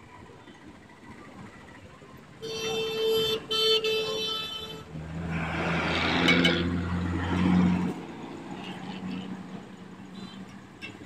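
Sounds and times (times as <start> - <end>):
tyre and road noise: 0.0 - 11.0
vehicle horn honking: 2.4 - 4.9
truck engine droning past: 4.8 - 8.6.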